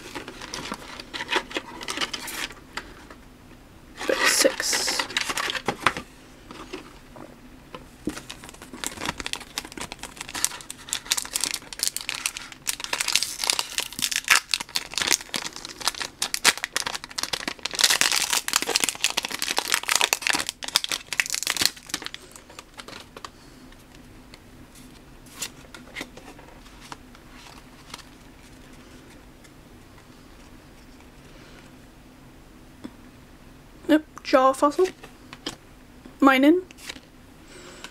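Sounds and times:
foil pack crinkling and tearing: 0.0 - 2.6, 8.1 - 23.3.

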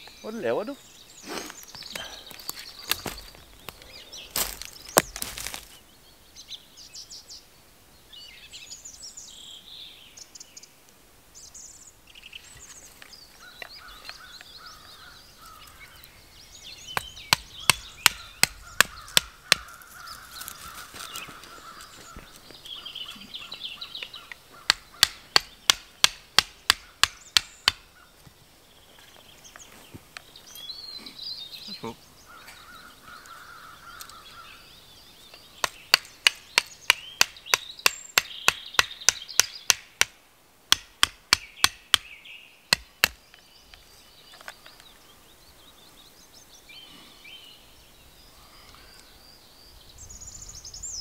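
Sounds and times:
hatchet knocking wooden stake: 16.9 - 19.8, 24.0 - 27.9, 35.6 - 42.1, 42.7 - 43.2.

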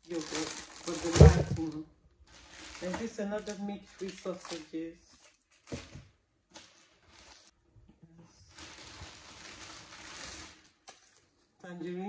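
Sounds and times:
plastic bags rustling: 0.0 - 7.5, 8.4 - 11.5.

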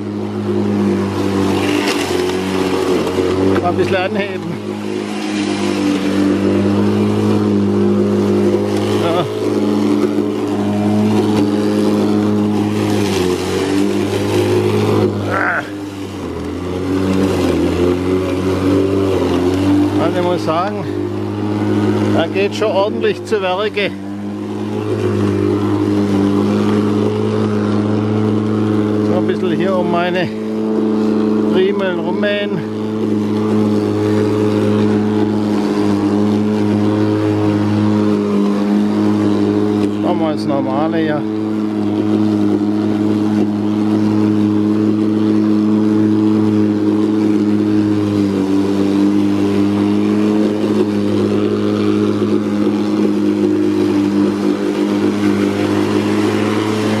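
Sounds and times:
electric lawn mower cutting grass: 0.0 - 57.0.

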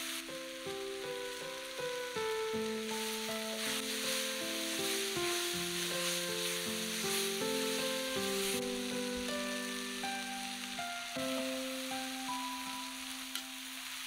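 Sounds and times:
slow background melody: 0.0 - 14.0
vegetables sizzling in a wok: 0.0 - 14.0
wooden spatula stirring: 2.6 - 10.3.

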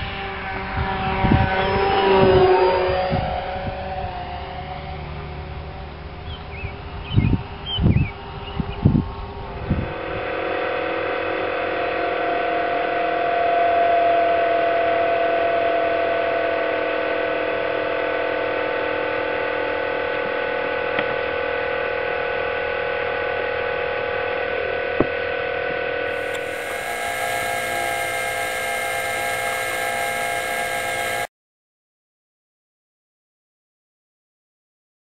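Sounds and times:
electric motors whining: 26.1 - 31.3.

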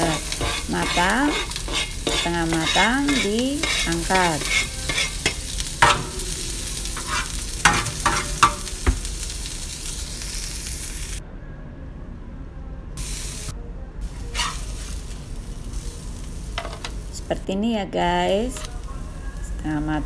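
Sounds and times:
metal spatula scraping a pan: 0.0 - 9.0, 14.1 - 15.1
vegetables sizzling in oil: 0.0 - 11.2, 13.0 - 17.5, 18.2 - 20.0.

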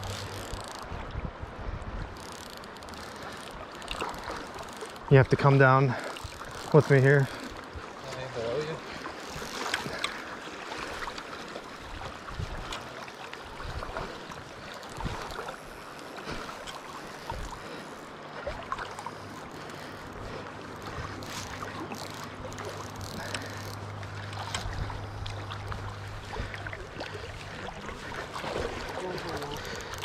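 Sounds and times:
river current rushing: 2.1 - 30.0
low steady hum: 15.0 - 30.0.

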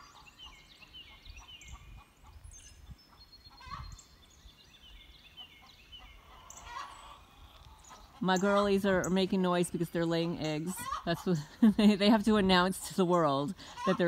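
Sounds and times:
hens cackling: 3.5 - 4.0, 5.6 - 12.6, 13.6 - 14.0.

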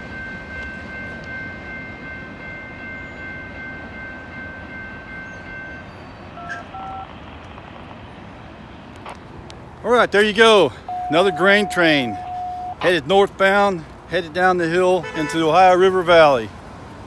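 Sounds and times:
railroad crossing bell ringing: 0.0 - 7.2, 10.2 - 16.4
freight train rumble: 0.0 - 17.0
short beeps: 6.4 - 7.1, 10.9 - 12.8.

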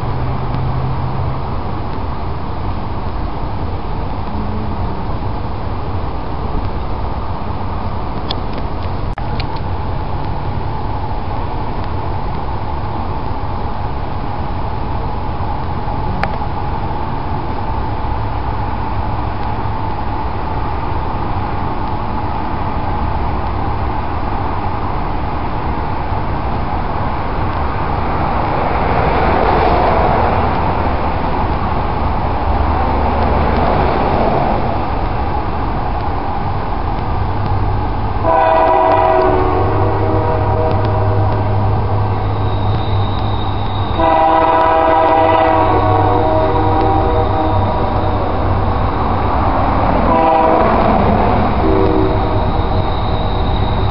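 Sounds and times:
train rumble: 0.0 - 53.9
locomotive air horn: 38.2 - 48.7, 49.9 - 53.9.

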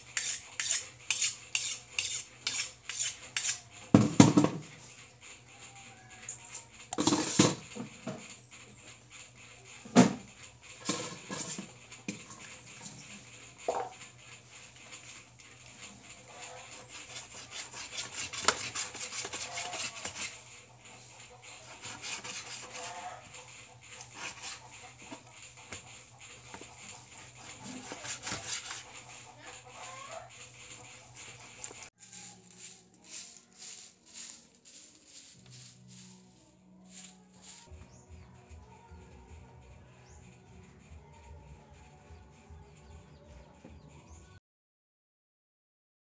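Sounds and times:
knife cutting on cutting board: 17.1 - 20.3, 27.5 - 28.9.

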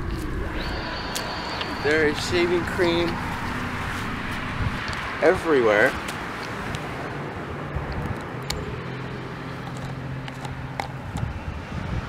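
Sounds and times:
car engine hum: 0.0 - 7.8
outdoor background noise: 0.0 - 12.0.

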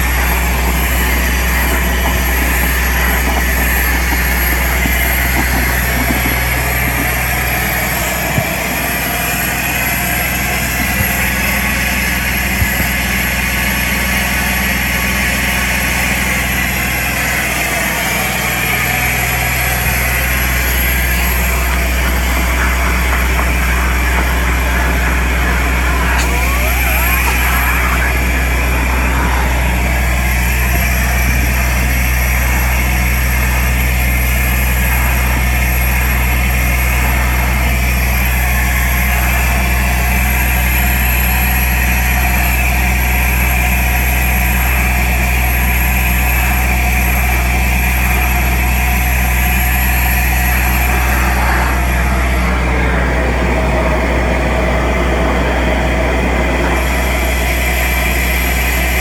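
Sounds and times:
vacuum excavation machine drone: 0.0 - 59.0
rushing air: 18.9 - 40.4, 46.4 - 59.0.

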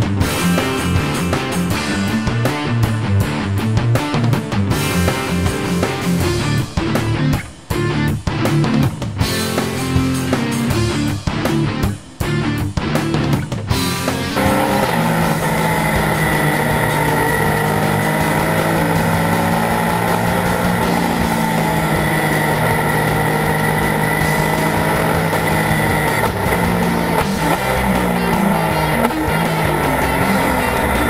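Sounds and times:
rock guitar music: 0.0 - 31.0
race car engine: 13.1 - 31.0.

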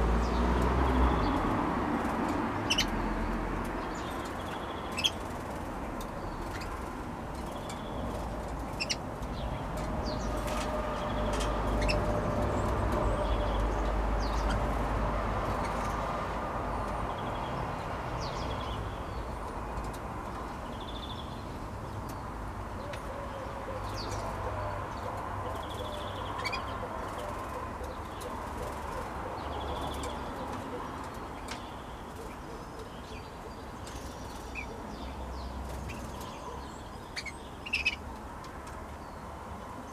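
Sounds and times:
canaries chirping: 0.0 - 39.9
light clicks on perches: 0.6 - 12.0, 19.3 - 21.2, 38.0 - 39.0.

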